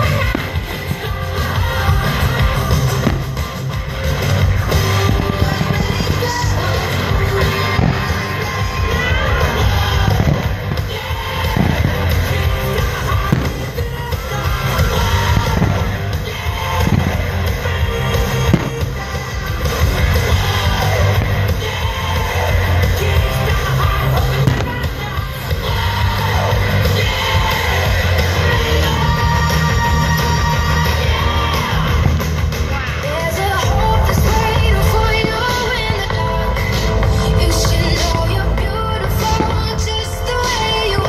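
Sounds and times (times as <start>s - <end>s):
fireworks bangs: 0.0s - 41.0s
loud rock music: 0.0s - 41.0s.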